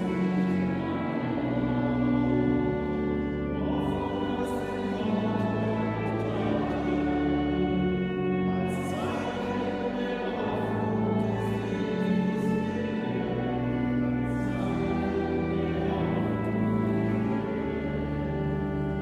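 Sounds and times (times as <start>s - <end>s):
slow church music with choir: 0.0s - 19.0s.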